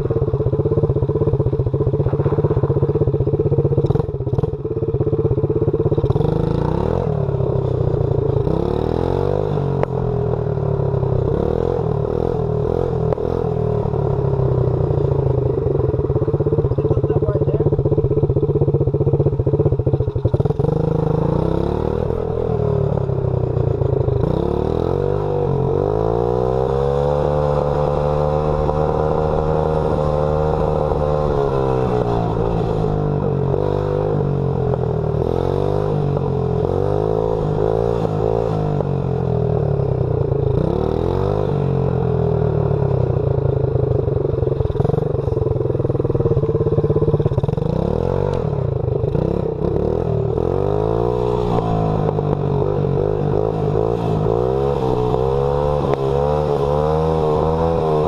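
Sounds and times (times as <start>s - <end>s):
dirt bike engine revving: 49.1s - 58.0s.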